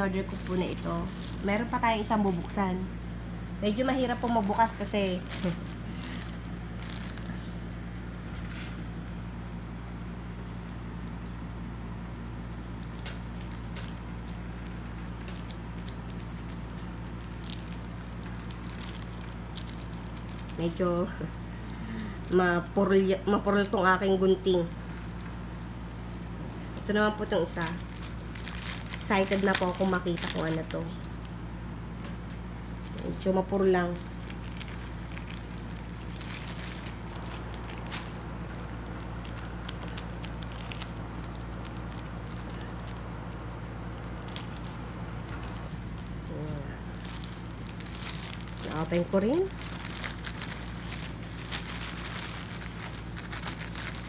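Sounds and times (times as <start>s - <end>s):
plastic mailer bag crinkling: 0.0s - 31.4s, 32.7s - 54.0s
steady low hum: 0.0s - 54.0s
scissors cutting plastic: 25.8s - 31.3s.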